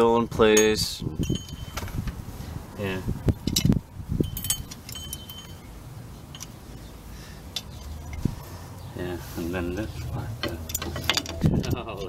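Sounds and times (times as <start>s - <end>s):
metallic clicks and clinks: 3.4s - 5.7s, 6.3s - 6.6s, 10.4s - 12.0s.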